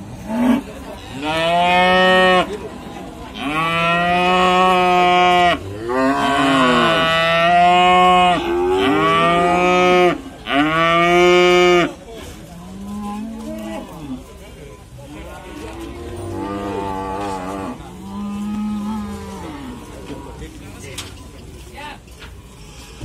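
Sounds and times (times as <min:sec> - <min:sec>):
calf mooing loudly: 0:03.3 - 0:11.9.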